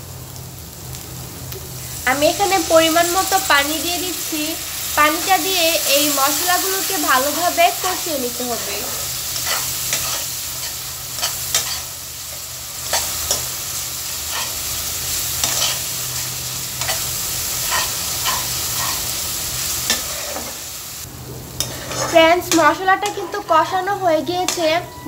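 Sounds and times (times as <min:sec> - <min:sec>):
masala sizzling in oil: 0:00.0 - 0:25.0
spatula scraping a pan: 0:08.9 - 0:12.0, 0:14.3 - 0:14.6, 0:15.3 - 0:19.1, 0:19.8 - 0:20.6, 0:21.6 - 0:23.8.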